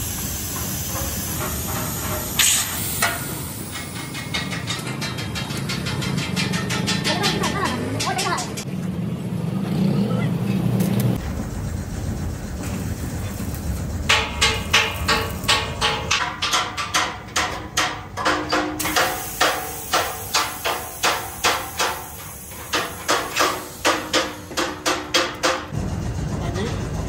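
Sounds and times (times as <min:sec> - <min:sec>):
low steady rumble: 0:11.2 - 0:18.4
hammer blows on steel: 0:14.1 - 0:25.7.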